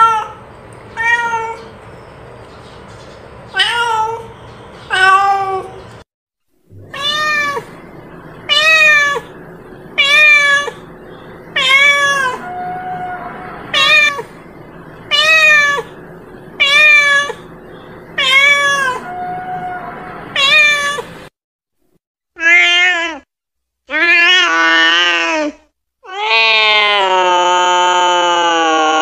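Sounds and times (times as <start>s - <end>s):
cat meowing: 1.0s - 1.7s, 3.5s - 4.3s, 4.9s - 5.8s, 6.8s - 7.8s, 8.5s - 9.4s, 10.0s - 10.9s, 11.6s - 14.4s, 15.1s - 16.0s, 16.6s - 17.5s, 18.2s - 21.2s, 22.4s - 23.2s.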